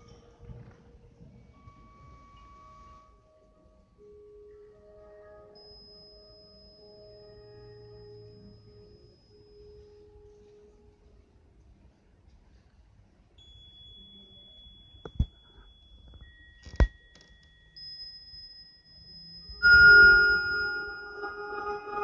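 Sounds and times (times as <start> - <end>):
bell-like chord ringing: 5.1 - 10.6, 17.4 - 22.0
thin pure electronic tones: 19.0 - 22.0.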